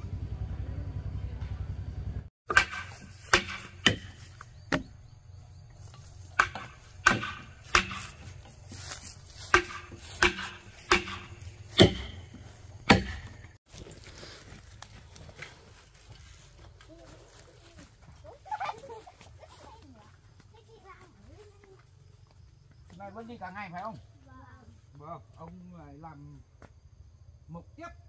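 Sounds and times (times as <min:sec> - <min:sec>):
blade chopping wood: 0:02.5 - 0:04.9, 0:06.3 - 0:08.6, 0:09.4 - 0:13.6.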